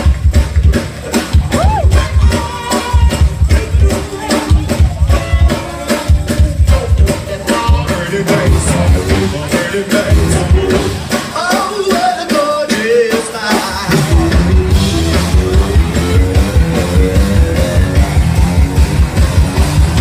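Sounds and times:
drums and bass beat: 0.0s - 20.0s
funk band playing live: 0.0s - 20.0s
people singing: 2.0s - 14.8s.

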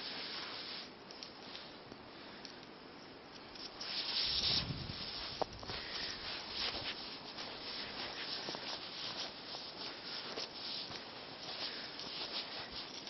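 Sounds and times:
footsteps crunching through snow: 3.8s - 13.0s.

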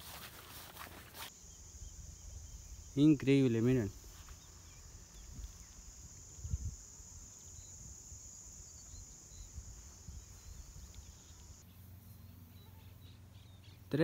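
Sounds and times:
high-pitched insect chorus: 0.0s - 11.9s.

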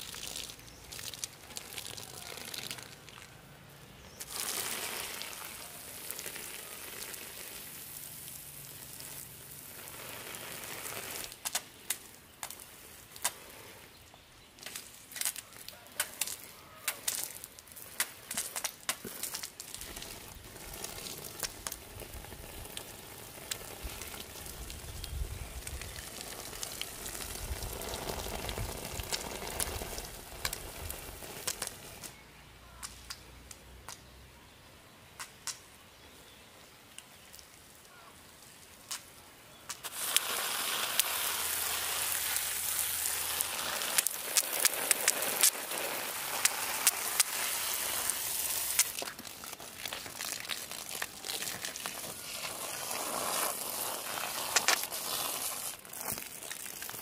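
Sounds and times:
quiet clicks and crackles: 10.9s - 34.1s, 35.2s - 35.8s, 36.9s - 41.2s, 42.7s - 57.0s
food sizzling in hot oil: 39.8s - 57.0s.

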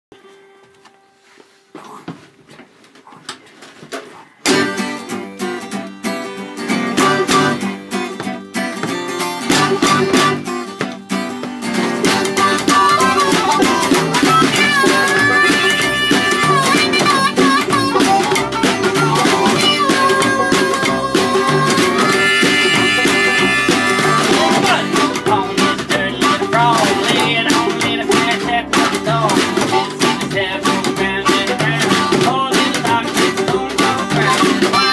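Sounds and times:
strummed acoustic guitar: 4.1s - 34.9s
banjo: 4.4s - 8.0s, 8.8s - 34.9s
harmonica playing held notes: 6.8s - 7.8s, 9.4s - 10.6s, 12.0s - 27.3s, 29.6s - 31.8s, 34.1s - 34.9s
upright double bass: 6.9s - 7.6s, 9.5s - 10.4s, 12.0s - 34.9s
drum struck by a stick: 8.2s - 34.9s.

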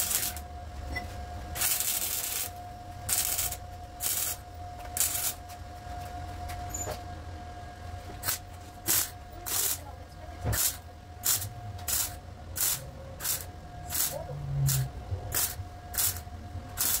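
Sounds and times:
welding arc crackling: 0.0s - 0.4s, 1.6s - 4.4s, 5.0s - 5.4s, 8.2s - 9.9s, 10.6s - 17.0s.

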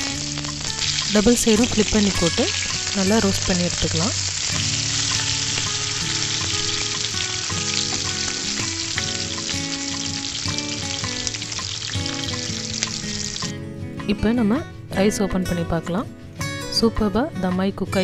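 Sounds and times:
chicken frying in oil: 0.0s - 13.5s.

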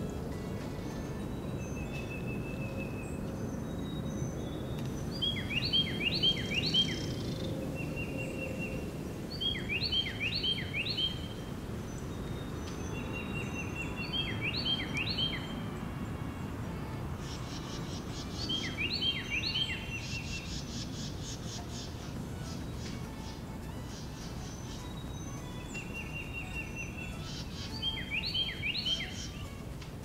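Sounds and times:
songbird whistling: 0.6s - 15.8s, 17.2s - 29.6s
thin even bird notes: 16.3s - 30.0s.

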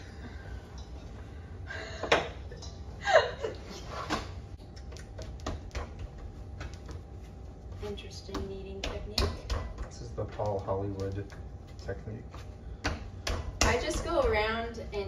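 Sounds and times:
dough being kneaded: 4.1s - 14.4s
small clicks and taps: 10.4s - 11.4s.

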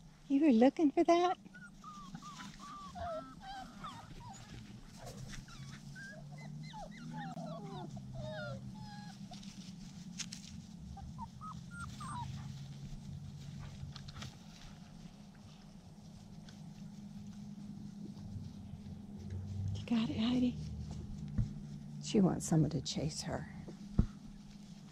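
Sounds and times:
steady low hum: 0.0s - 24.9s
puppies whining and squealing: 1.4s - 9.6s, 10.9s - 12.8s.

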